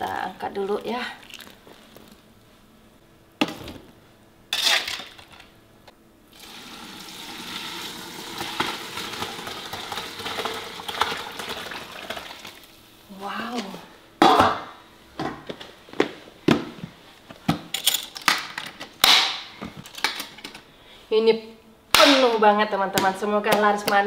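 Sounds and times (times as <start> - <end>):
broth pouring into pot: 6.3 - 12.8.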